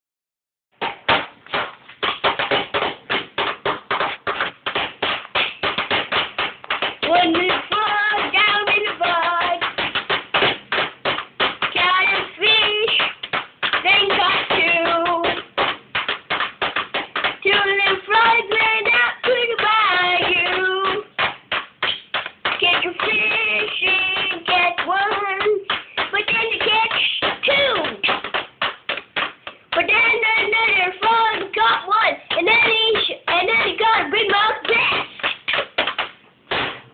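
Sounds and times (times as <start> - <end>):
child singing: 7.0 - 9.6, 11.7 - 13.1, 13.8 - 15.4, 17.4 - 21.1, 22.5 - 28.2, 29.7 - 35.1.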